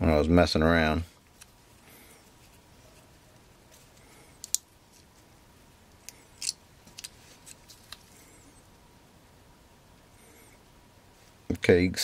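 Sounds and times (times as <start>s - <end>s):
small parts clicking and crackling: 3.9s - 5.1s, 6.0s - 8.1s.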